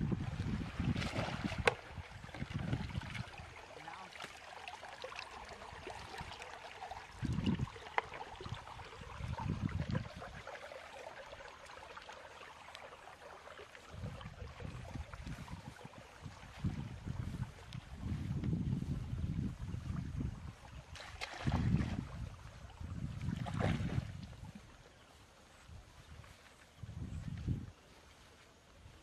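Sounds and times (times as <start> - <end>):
wind buffeting microphone: 0.0 - 3.6, 7.0 - 10.5, 13.8 - 24.8, 25.5 - 27.9
water trickling in channel: 0.0 - 29.0.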